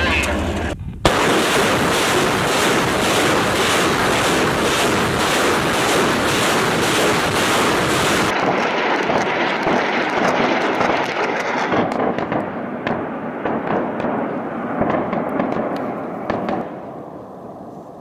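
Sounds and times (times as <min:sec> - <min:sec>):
rocket motors roaring: 0:00.0 - 0:08.4
sharp cracks: 0:00.2 - 0:16.9.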